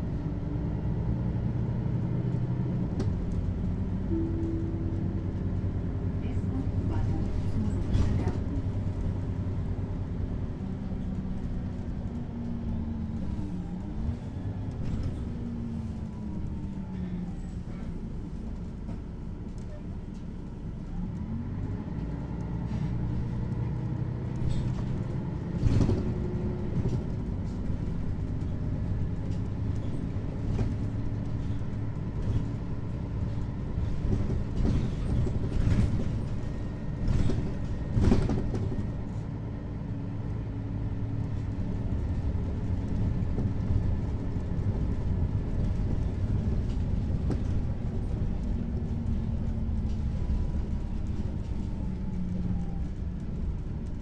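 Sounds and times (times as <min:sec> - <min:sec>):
bus diesel engine running: 0:00.0 - 0:54.0.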